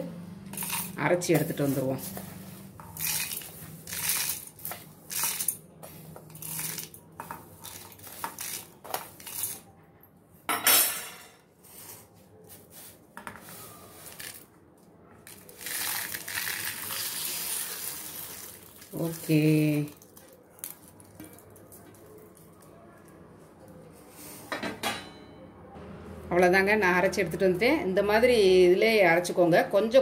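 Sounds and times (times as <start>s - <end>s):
grains rattling into metal jar: 0.5s - 2.1s, 2.8s - 9.6s, 15.3s - 21.4s.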